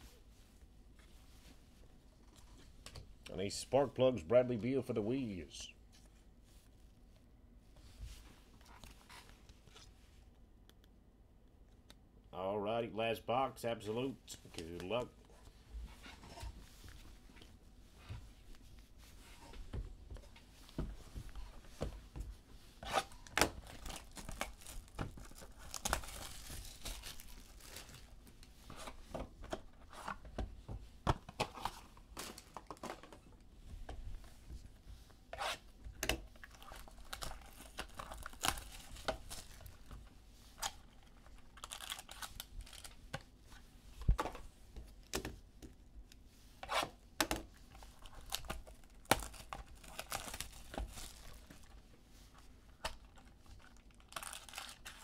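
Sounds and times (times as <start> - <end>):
plastic wrap tearing: 22.9 - 28.2, 36.3 - 39.8, 40.6 - 43.0, 47.9 - 51.7, 52.9 - 55.0
plastic wrappers crinkling: 23.0 - 28.5, 36.3 - 40.0, 40.6 - 43.1, 47.8 - 51.8, 52.8 - 55.0.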